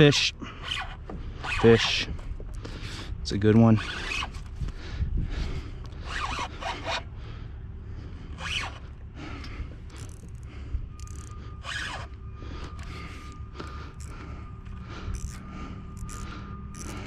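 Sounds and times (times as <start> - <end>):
faint steady tone: 8.8 - 17.0
fishing reel drag noise: 11.0 - 14.2, 15.0 - 17.0.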